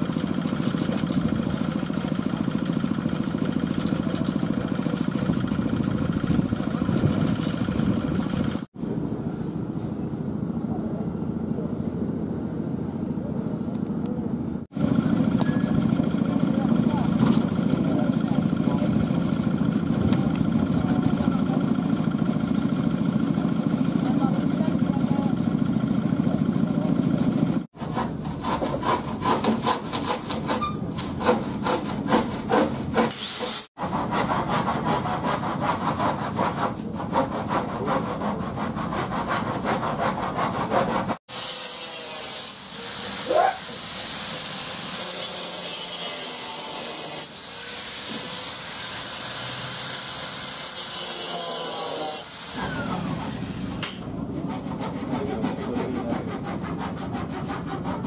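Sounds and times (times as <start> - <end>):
scraping or sawing wood: 27.8 - 58.0
power tool whining: 33.1 - 33.7, 41.3 - 54.1.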